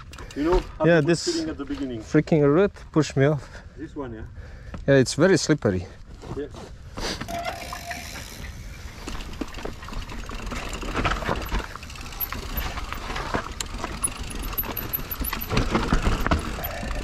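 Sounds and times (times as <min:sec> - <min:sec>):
bike rattling and knocking: 0:07.3 - 0:17.0.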